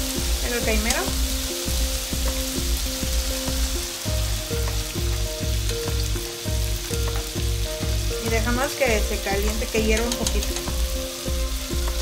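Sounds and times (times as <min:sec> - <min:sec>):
mushrooms sizzling in frying pan: 0:00.0 - 0:12.0
music with repeating bass line: 0:00.0 - 0:12.0.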